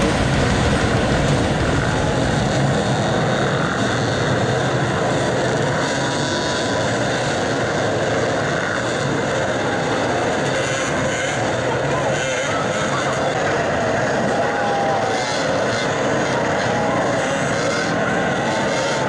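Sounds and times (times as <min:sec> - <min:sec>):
dirt bikes revving: 0:00.0 - 0:19.0.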